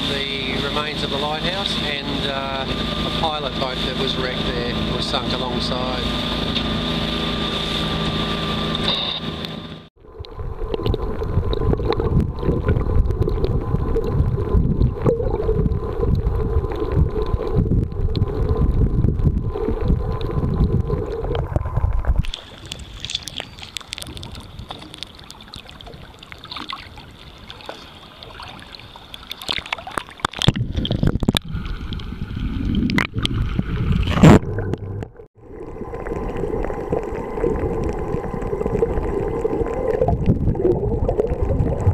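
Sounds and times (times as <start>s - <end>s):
boat motor running: 0.0s - 22.6s
muffled underwater rumble: 0.0s - 41.9s
sea water sloshing and gurgling: 0.0s - 41.9s.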